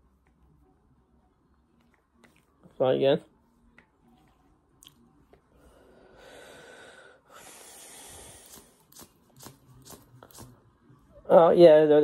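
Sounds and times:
person breathing: 5.5s - 8.8s.

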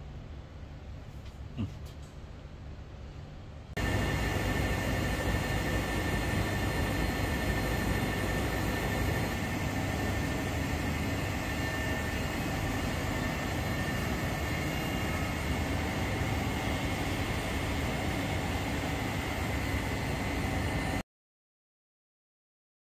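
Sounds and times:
condensing units whirring: 3.8s - 21.0s
high-pitched whine: 3.8s - 21.0s.

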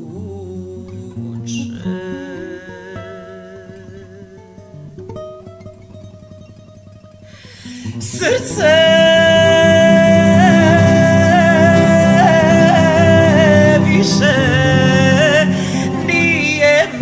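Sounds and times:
acoustic guitar notes: 0.0s - 17.0s
singer breathing: 7.2s - 8.0s, 15.4s - 16.1s
person singing long high note: 7.9s - 17.0s.

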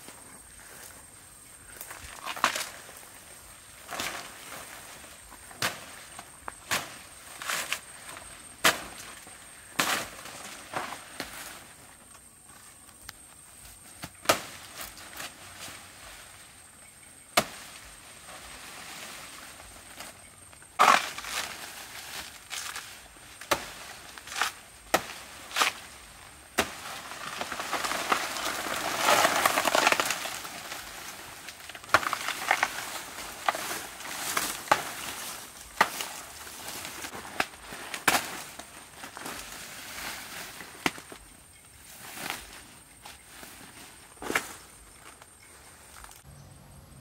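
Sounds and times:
blade chopping plant trunk: 20.8s - 21.6s, 26.6s - 30.7s
rustling crash of falling leaves: 20.8s - 41.2s.

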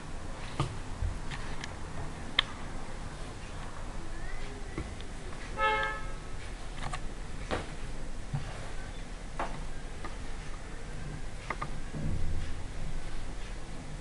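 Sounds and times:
short horn toot: 5.6s - 6.2s.

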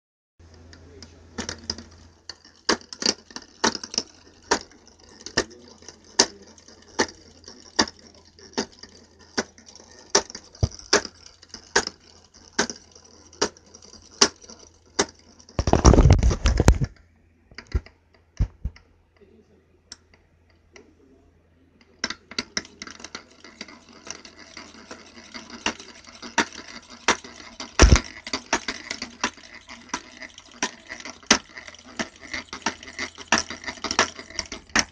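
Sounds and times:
rough scraping rattle: 0.9s - 16.9s, 21.9s - 34.9s.

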